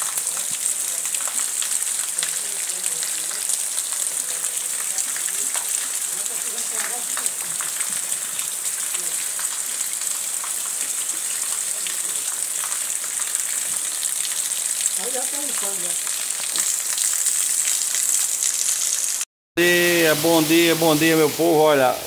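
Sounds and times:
heavy rain hiss: 0:00.0 - 0:12.7, 0:18.4 - 0:22.0.

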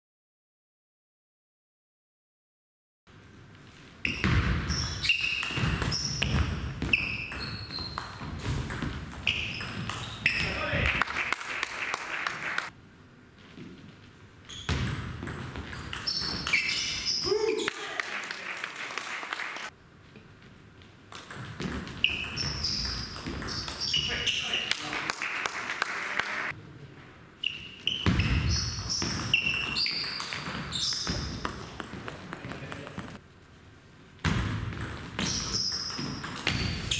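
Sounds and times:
sports hall background: 0:03.1 - 0:36.9
shoes squeaking on floor: 0:04.0 - 0:10.8, 0:13.4 - 0:14.9, 0:15.9 - 0:17.7, 0:21.6 - 0:24.6, 0:27.4 - 0:33.2, 0:35.2 - 0:36.9.

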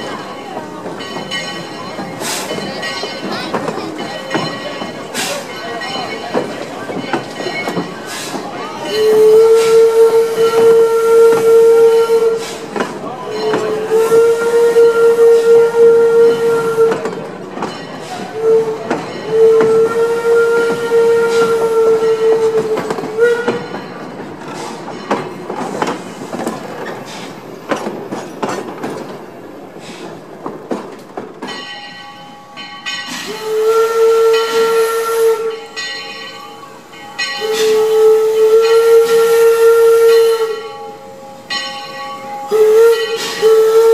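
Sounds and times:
train wheels clicking on rail joints: 0:00.0 - 0:43.9
steam locomotive whistle: 0:08.1 - 0:17.2, 0:18.1 - 0:23.8, 0:33.1 - 0:35.8, 0:37.3 - 0:41.5, 0:42.4 - 0:43.9.

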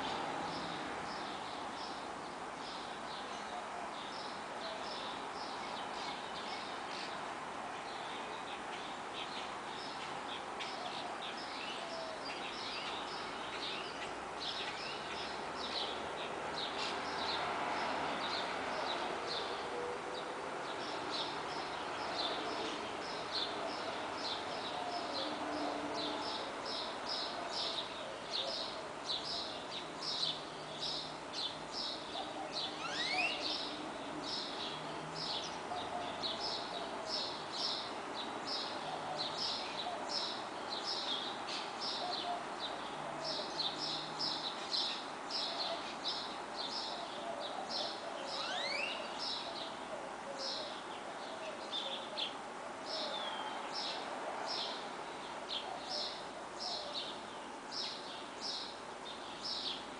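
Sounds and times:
distant traffic hum: 0:00.0 - 0:59.9
birds chirping: 0:20.2 - 0:59.9.

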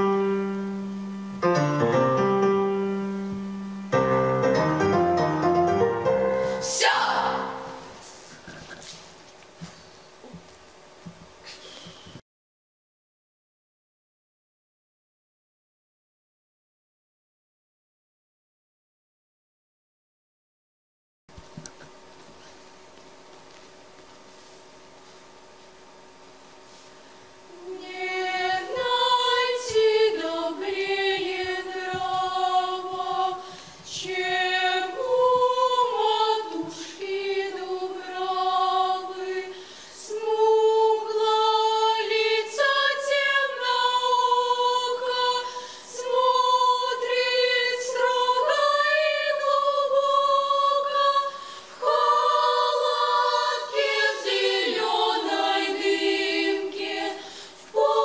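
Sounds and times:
children's choir singing a cappella: 0:06.1 - 0:08.2, 0:27.5 - 0:58.0.

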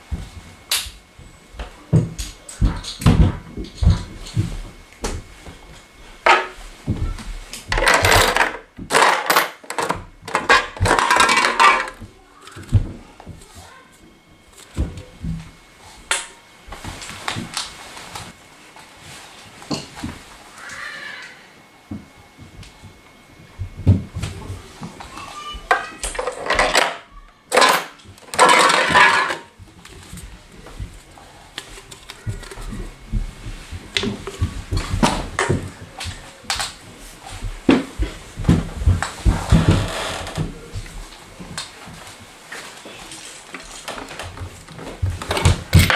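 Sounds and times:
plastic bricks clattering: 0:07.7 - 0:12.0, 0:27.6 - 0:29.5.

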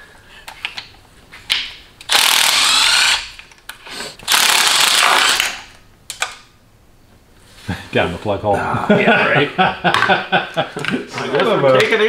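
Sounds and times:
cordless power tool buzzing: 0:02.1 - 0:03.4, 0:04.3 - 0:05.5.

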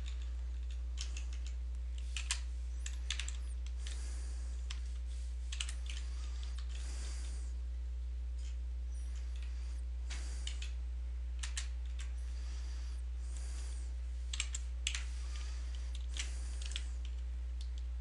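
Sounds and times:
keyboard typing: 0:00.0 - 0:04.0, 0:05.5 - 0:06.8
low electrical hum: 0:00.0 - 0:18.0.

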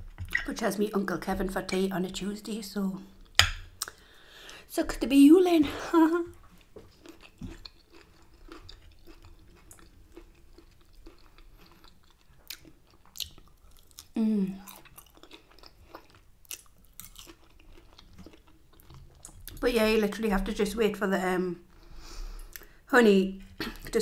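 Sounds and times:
person chewing food: 0:03.2 - 0:04.6, 0:06.3 - 0:19.6, 0:21.7 - 0:22.8
person's voice: 0:04.7 - 0:06.3, 0:19.6 - 0:21.6.

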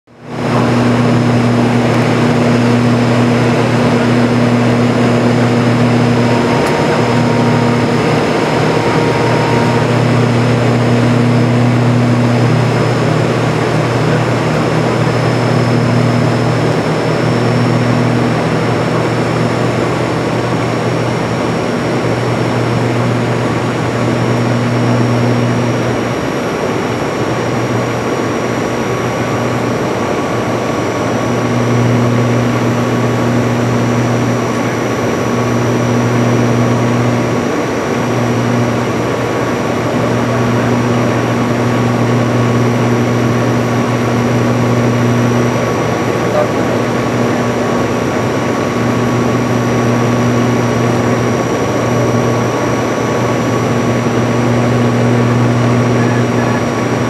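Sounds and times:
turboprop engines droning: 0:00.1 - 0:57.0
thin high whine: 0:00.3 - 0:26.1, 0:30.6 - 0:57.0.

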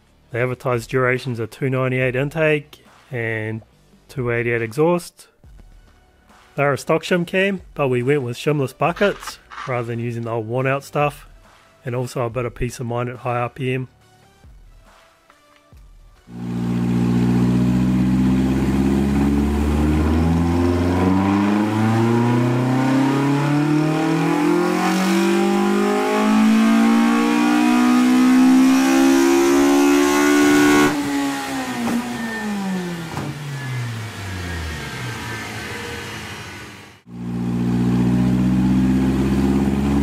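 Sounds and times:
car engine full-throttle revving: 0:16.3 - 0:40.0.

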